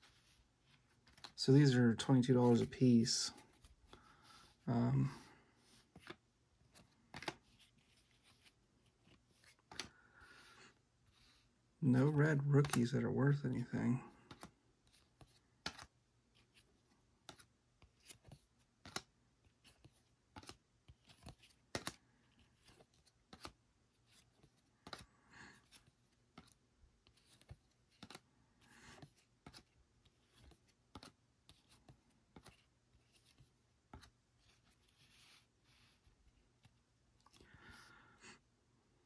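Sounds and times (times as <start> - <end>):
cards being flipped: 0.1 - 1.4, 5.8 - 10.6, 12.6 - 12.8, 14.2 - 36.0.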